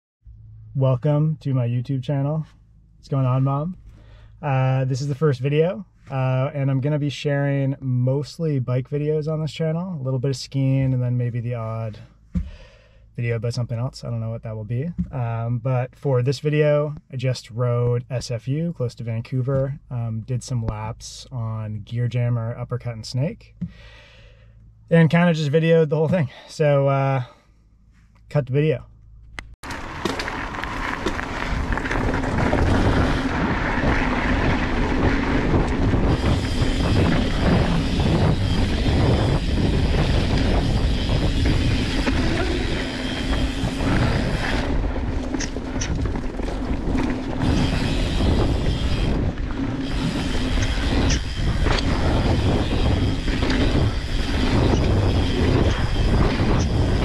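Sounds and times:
bike rattling: 29.6s - 57.0s
tyres crunching over loose stones: 29.6s - 57.0s
wind rumble on microphone: 29.6s - 57.0s.

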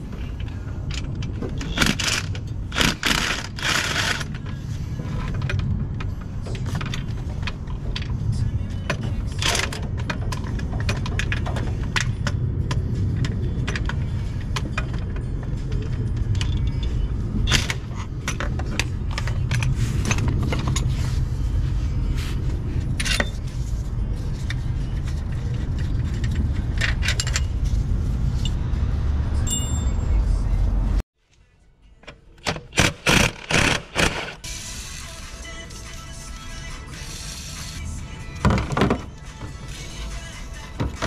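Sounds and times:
steady low rumble: 0.0s - 31.0s.

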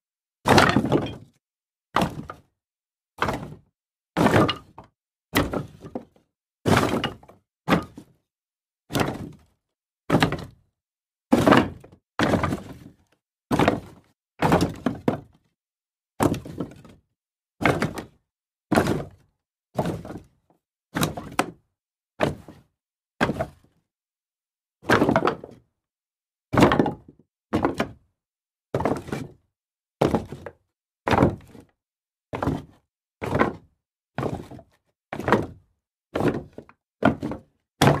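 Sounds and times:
wood pieces thunking down: 0.5s - 1.2s.

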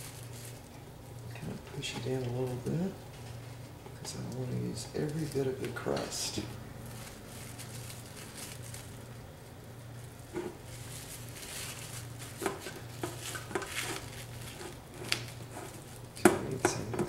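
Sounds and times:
plastic wrap crinkling: 0.0s - 17.0s
taps against foil pan: 16.2s - 17.0s.

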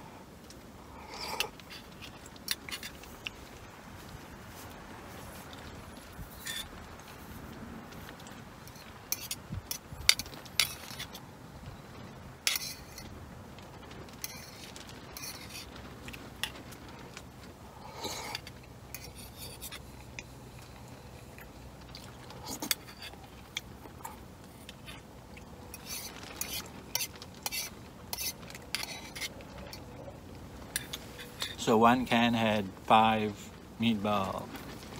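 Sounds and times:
spoon scraping a metal pot: 6.3s - 6.7s, 8.7s - 11.2s, 12.5s - 13.1s, 18.0s - 19.8s, 25.8s - 29.9s.

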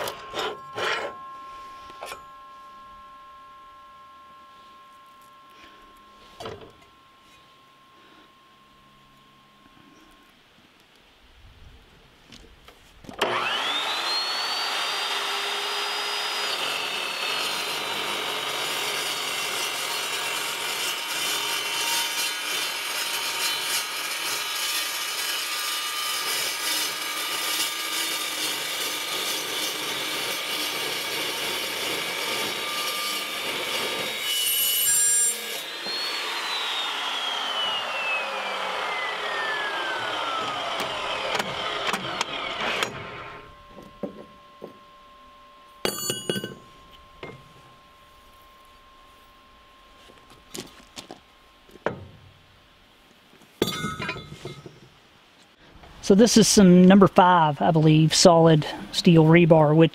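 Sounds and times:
blade cutting steel tube: 0.0s - 2.5s, 13.2s - 43.5s
chop saw whining: 0.0s - 10.2s, 13.1s - 52.2s.

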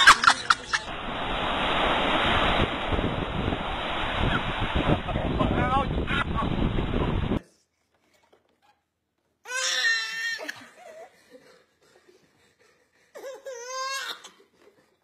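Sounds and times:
infant wailing: 9.5s - 10.6s.

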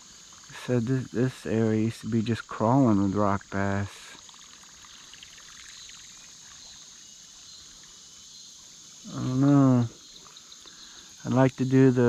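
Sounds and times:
chirping insects: 0.0s - 12.0s
man's voice: 0.5s - 4.0s, 11.2s - 12.0s.

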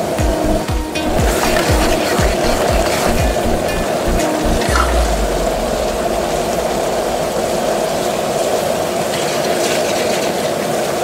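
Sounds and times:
gas burner roaring: 0.4s - 10.0s
metal ladle stirring wok: 0.9s - 4.7s.

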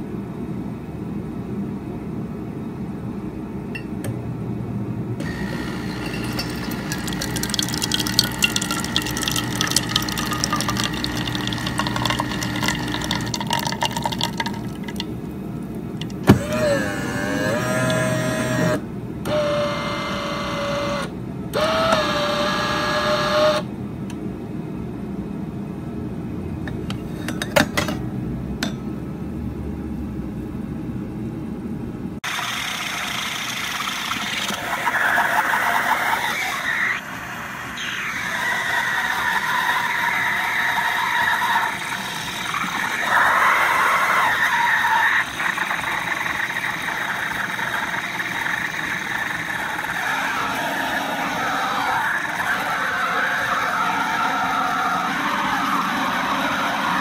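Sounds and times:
coffee grinder whirring: 5.2s - 15.2s, 16.0s - 21.0s, 32.3s - 36.9s, 37.8s - 57.0s
espresso pump humming: 5.2s - 21.0s, 37.8s - 52.8s.

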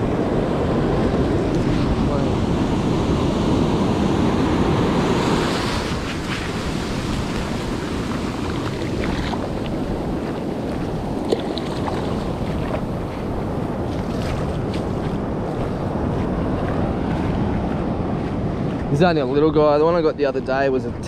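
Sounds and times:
surf washing up a beach: 0.0s - 20.0s
wind buffeting microphone: 0.0s - 21.0s.

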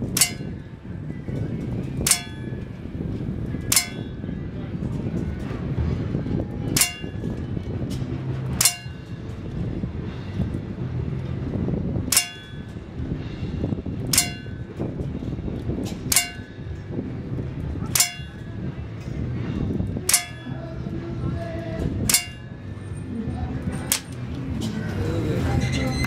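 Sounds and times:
low background murmur: 0.0s - 26.0s
pellet clanging on steel: 0.1s - 0.5s, 2.0s - 2.6s, 3.7s - 4.2s, 8.6s - 9.0s, 12.1s - 12.7s, 16.1s - 16.6s, 17.8s - 18.4s, 20.0s - 20.7s, 22.1s - 22.5s, 23.9s - 24.2s.

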